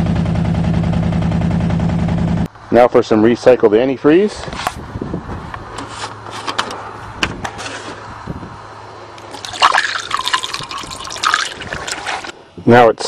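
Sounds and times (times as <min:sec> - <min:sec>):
liquid gurgling into radiator: 0:09.3 - 0:12.3.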